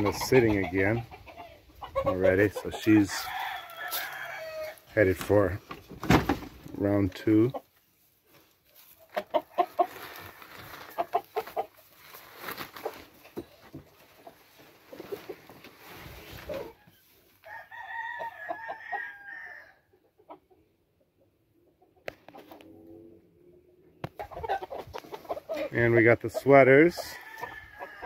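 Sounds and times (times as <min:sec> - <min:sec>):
chickens clucking: 0:00.0 - 0:04.2, 0:06.6 - 0:12.0, 0:12.7 - 0:16.9, 0:19.9 - 0:28.0
rooster crowing: 0:03.1 - 0:04.8, 0:17.4 - 0:19.7, 0:27.1 - 0:28.0.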